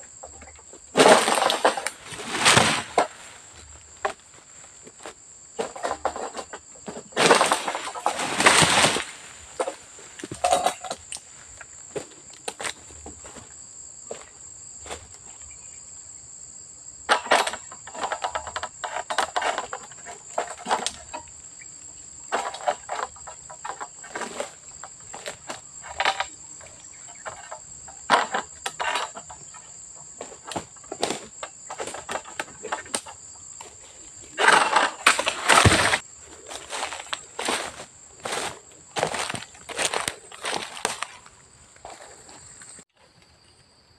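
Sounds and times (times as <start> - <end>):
insects droning: 0.0 - 43.9
pole sickle rustling fronds: 0.3 - 13.5, 17.2 - 42.8
rustling crash with heavy thud: 1.0 - 3.7, 7.0 - 10.6, 34.4 - 41.2.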